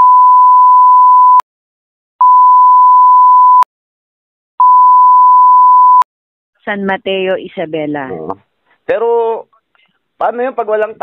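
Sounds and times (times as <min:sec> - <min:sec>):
censor bleep tone: 0:00.0 - 0:01.4, 0:02.2 - 0:03.7, 0:04.6 - 0:06.0.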